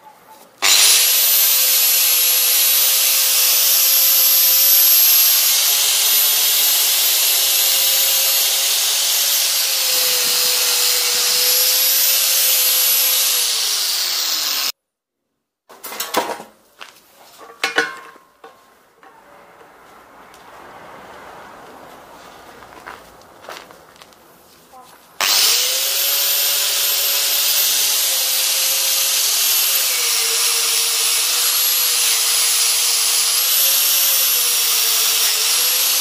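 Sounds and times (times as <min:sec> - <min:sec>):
angle grinder grinding steel: 0:00.6 - 0:14.7, 0:25.2 - 0:36.0.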